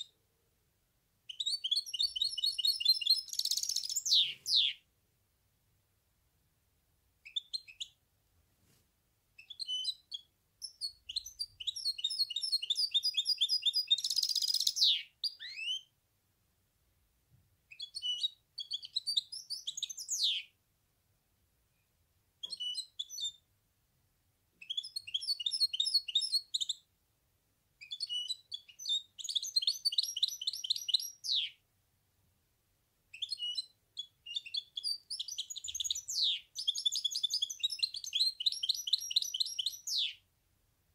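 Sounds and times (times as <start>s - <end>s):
finch singing high trills: 1.3s - 4.8s.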